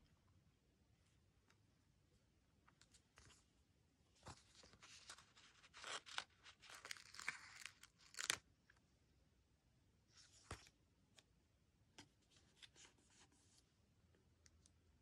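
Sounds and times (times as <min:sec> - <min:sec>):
paper sheet crinkling: 0:04.2 - 0:08.4.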